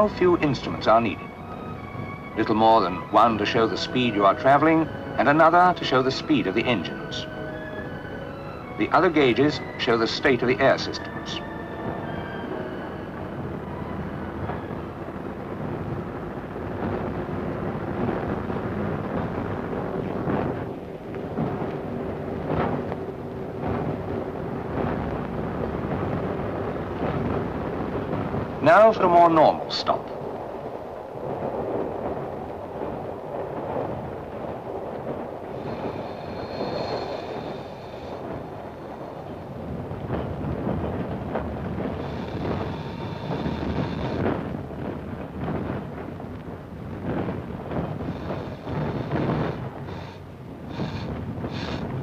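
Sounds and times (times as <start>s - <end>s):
railcar rumbling along track: 0.0s - 52.0s
wheels crossing rail joints: 29.6s - 52.0s.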